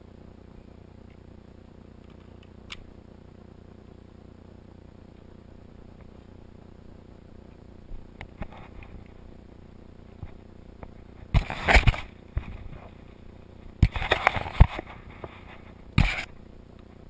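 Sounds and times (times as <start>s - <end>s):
camera handling noise: 11.4s - 12.8s, 13.8s - 15.4s, 16.0s - 16.3s.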